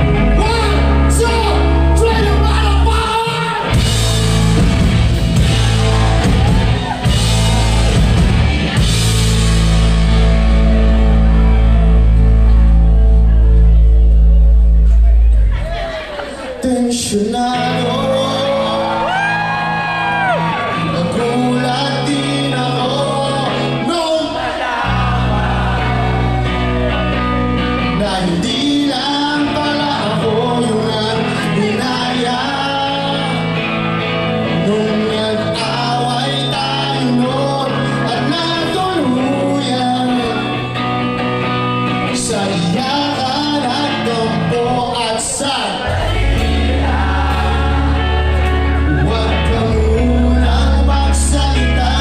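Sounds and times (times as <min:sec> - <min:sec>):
man singing: 0:00.0 - 0:03.9, 0:15.7 - 0:27.0, 0:27.6 - 0:41.2, 0:41.9 - 0:52.0
drums: 0:00.0 - 0:18.4, 0:45.8 - 0:52.0
bass guitar: 0:00.0 - 0:52.0
electric guitars: 0:00.0 - 0:52.0.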